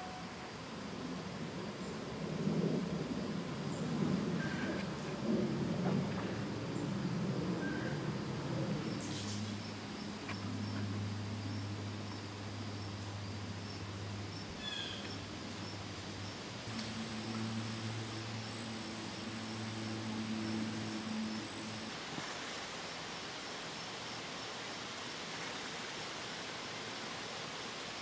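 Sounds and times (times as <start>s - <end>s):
pulsing insect song: 6.8s - 21.9s
high insect trill: 15.6s - 21.9s
low steady hum: 15.9s - 21.9s.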